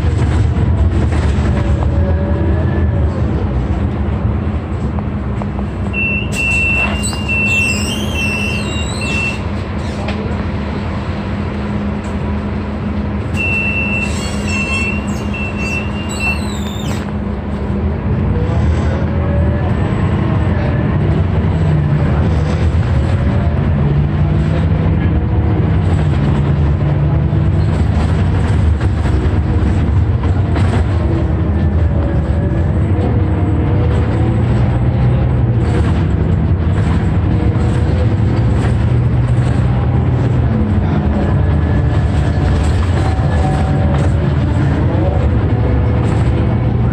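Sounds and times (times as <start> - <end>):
bus engine drone: 0.0 - 46.9
road noise: 0.0 - 46.9
high squealing tone: 6.0 - 9.9, 13.3 - 17.1.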